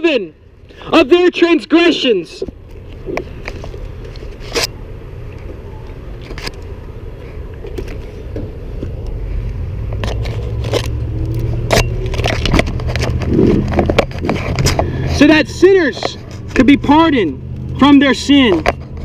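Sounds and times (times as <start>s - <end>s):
car engine humming: 2.5s - 19.0s
camera handling clicks and scrapes: 2.6s - 4.8s, 6.2s - 6.7s, 9.9s - 15.0s.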